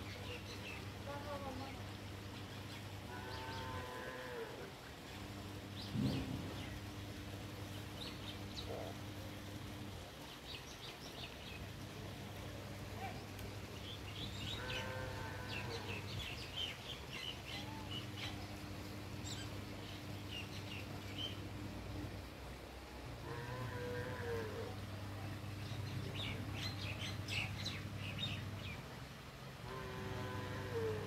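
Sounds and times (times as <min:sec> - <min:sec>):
steady low hum: 0:00.0 - 0:31.0
small birds chirping: 0:05.0 - 0:21.6
drawn-out animal call: 0:14.5 - 0:16.1, 0:29.6 - 0:31.0.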